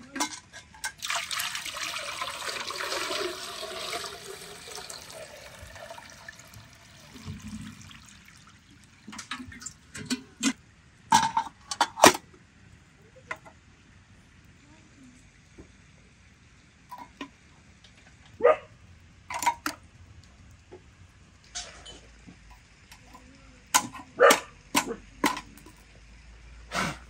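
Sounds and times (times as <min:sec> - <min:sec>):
water gushing into a container: 0:00.8 - 0:10.4.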